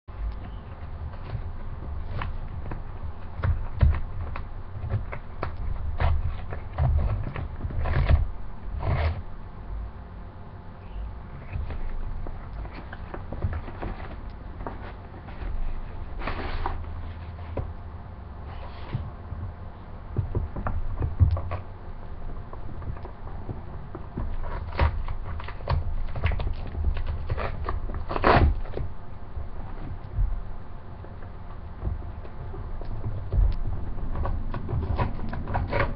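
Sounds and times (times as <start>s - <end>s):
cardboard crackling and scraping: 0.1s - 9.9s, 11.0s - 35.9s
plastic mailer tearing: 24.4s - 28.8s.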